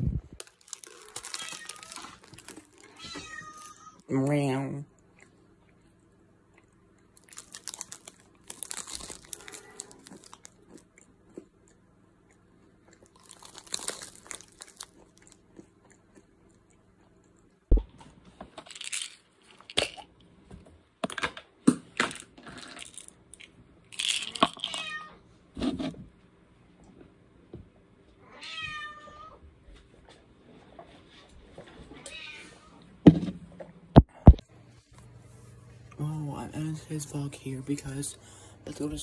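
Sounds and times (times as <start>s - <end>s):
chewing crunchy snack: 0.4s - 3.7s, 5.0s - 17.7s
plastic snack bag crinkling: 0.4s - 3.8s, 7.1s - 11.0s, 13.0s - 15.5s, 18.6s - 20.1s, 22.5s - 24.9s.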